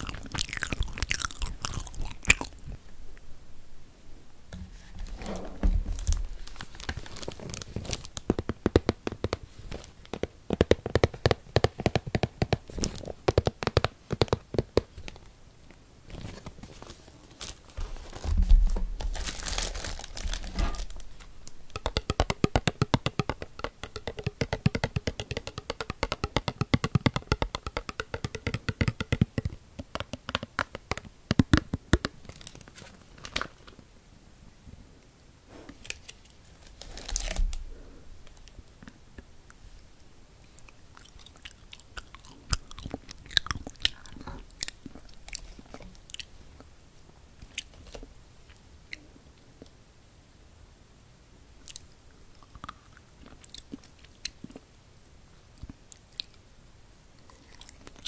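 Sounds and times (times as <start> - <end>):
dull thud: 4.6 - 6.4
plastic packaging crinkling: 5.8 - 8.6, 16.1 - 24.4, 32.2 - 33.8, 35.8 - 37.6.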